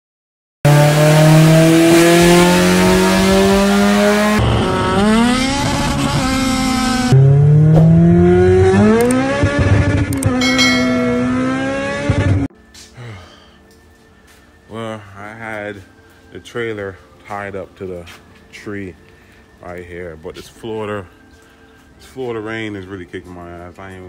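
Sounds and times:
car engine accelerating hard: 0.7 - 12.5.

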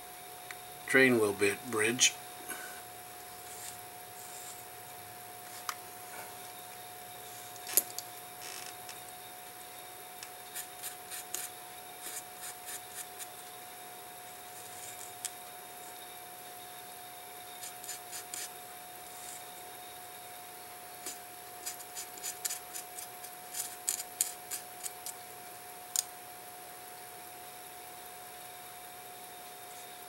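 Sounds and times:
faint hum: 0.0 - 30.0
hand tool scratching metal: 3.4 - 4.7, 10.5 - 13.5, 17.6 - 19.4, 21.0 - 25.0.

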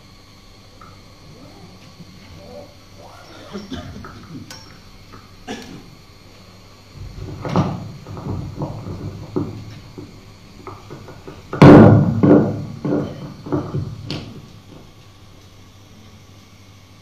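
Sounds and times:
knocks and thumps: 7.0 - 14.9.

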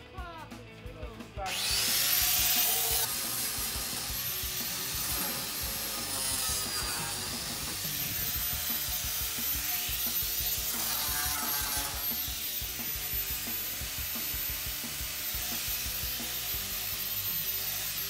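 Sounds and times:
drill motor whine: 1.5 - 18.0
sanding disc scraping metal: 1.5 - 18.0.

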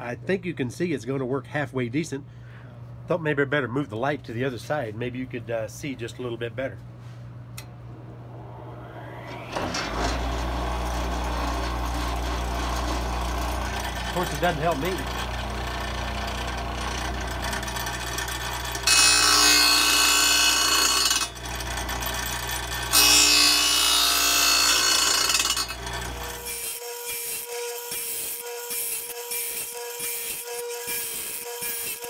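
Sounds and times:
motor humming: 7.6 - 26.5
fast pulsing vibration: 8.1 - 18.9.

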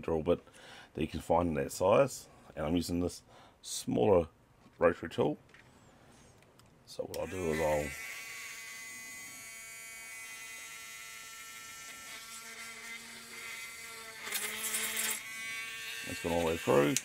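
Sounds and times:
rotary tool drilling plastic: 10.7 - 17.0.

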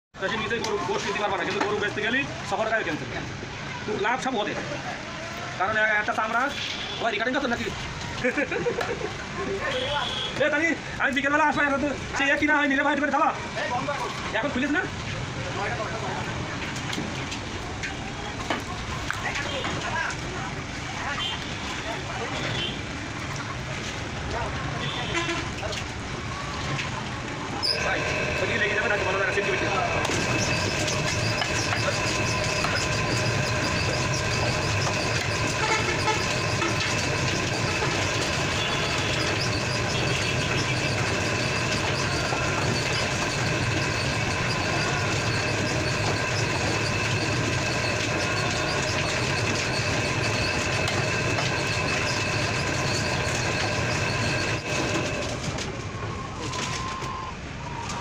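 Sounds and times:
machine drone with tones: 27.5 - 56.3.

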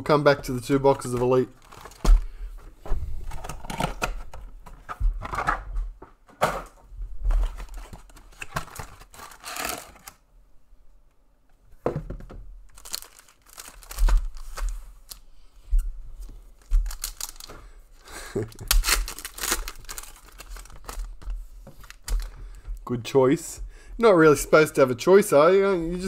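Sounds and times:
wrappers tearing and crinkling: 1.5 - 2.0, 7.6 - 10.2, 12.8 - 15.2, 16.8 - 17.5, 18.4 - 21.2.

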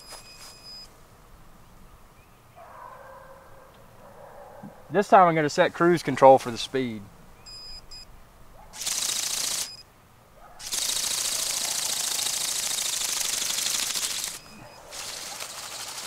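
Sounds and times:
robotic bird wings rattling: 8.8 - 9.8, 10.6 - 16.0.

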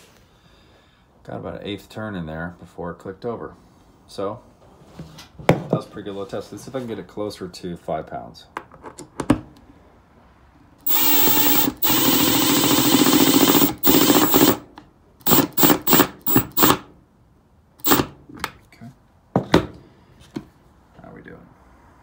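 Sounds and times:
impact driver driving screw: 10.9 - 14.6, 15.2 - 16.9, 17.8 - 18.2.

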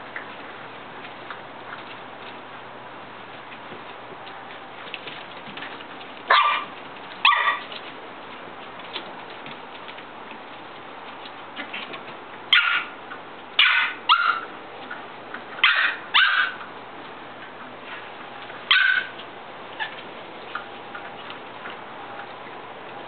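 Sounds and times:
puppies yipping: 6.3 - 7.8, 12.5 - 13.0, 13.6 - 14.5, 15.5 - 16.7, 18.6 - 19.2, 19.8 - 21.1.

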